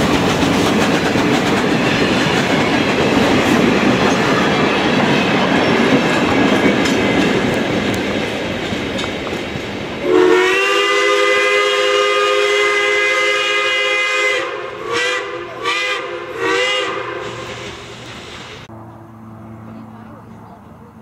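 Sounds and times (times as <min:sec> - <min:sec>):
moving train rushing: 0:00.0 - 0:21.0
steam locomotive whistle: 0:10.0 - 0:18.7.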